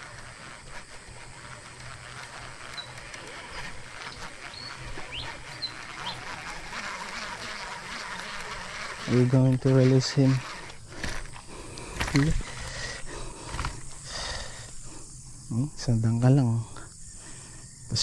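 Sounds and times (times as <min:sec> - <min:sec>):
fishing reel gears ticking: 0:00.0 - 0:15.2.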